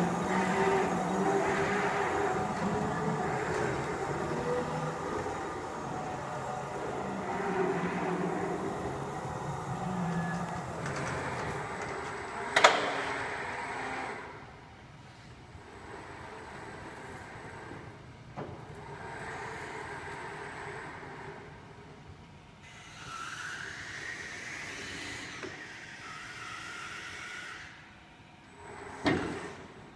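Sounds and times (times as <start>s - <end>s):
electric truck humming: 0.0s - 14.7s.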